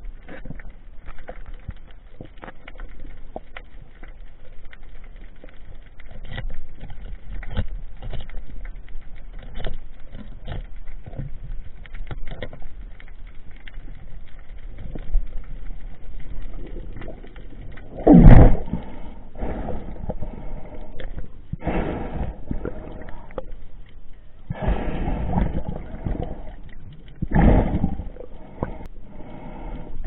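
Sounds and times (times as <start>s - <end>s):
low underwater rumble: 0.0s - 30.0s
underwater clicks and knocks: 5.4s - 18.9s.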